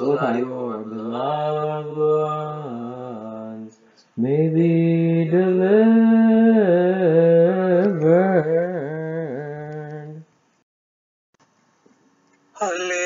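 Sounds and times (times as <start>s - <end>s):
man chanting: 0.0s - 10.2s.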